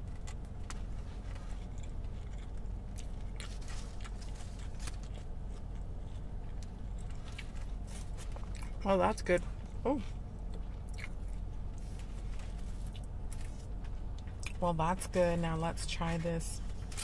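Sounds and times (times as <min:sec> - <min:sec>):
steady low hum: 0:00.0 - 0:17.0
chewing with wet clicks: 0:00.1 - 0:07.7, 0:08.4 - 0:08.8, 0:10.4 - 0:11.4.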